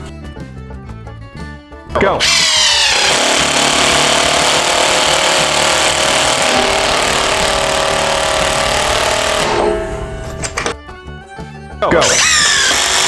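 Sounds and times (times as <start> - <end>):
impact driver hammering screw: 2.2 - 10.8, 12.0 - 13.0.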